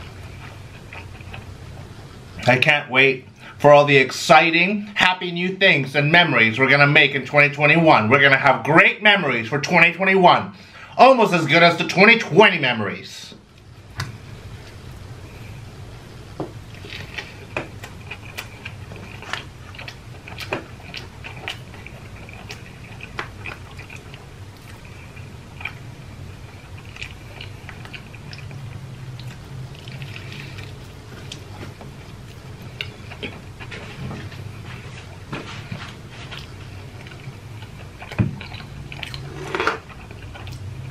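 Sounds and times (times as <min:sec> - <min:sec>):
man chewing food: 0:00.0 - 0:02.5, 0:13.4 - 0:40.9.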